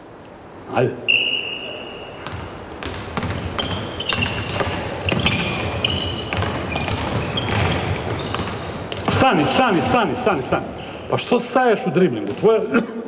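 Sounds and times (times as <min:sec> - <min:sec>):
sneaker squeaks: 0:01.1 - 0:10.0, 0:10.7 - 0:11.1
basketball bouncing on hardwood: 0:02.2 - 0:09.4, 0:12.2 - 0:12.5.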